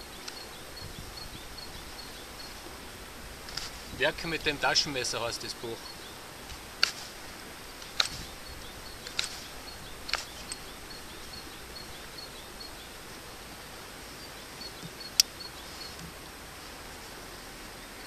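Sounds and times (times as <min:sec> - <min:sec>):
faint high chirps: 0:00.0 - 0:02.6
outdoor hiss: 0:00.0 - 0:18.0
knife cutting wood clicks: 0:07.8 - 0:08.2.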